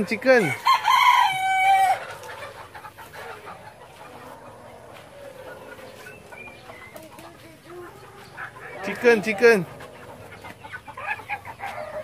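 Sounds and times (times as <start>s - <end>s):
faint chicken calls: 0.0s - 12.0s
rooster crowing: 0.6s - 2.0s.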